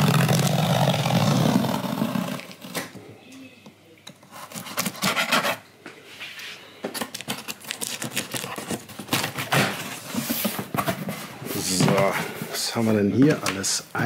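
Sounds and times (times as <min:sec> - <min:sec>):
cardboard flaps scraping: 0:00.0 - 0:02.8, 0:07.6 - 0:12.7
knife slitting packing tape: 0:04.4 - 0:05.6, 0:07.0 - 0:09.4.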